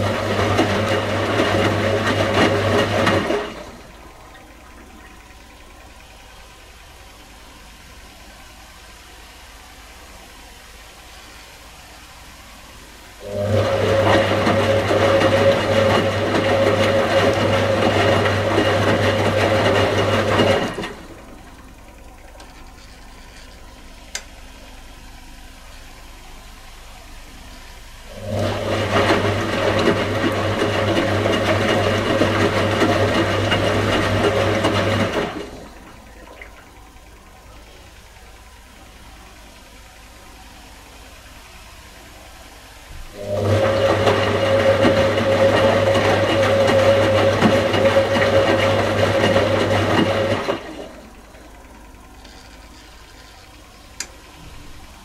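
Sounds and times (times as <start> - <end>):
washing machine drum turning: 0.0 - 7.6, 13.2 - 24.7, 28.1 - 37.7, 42.9 - 51.6.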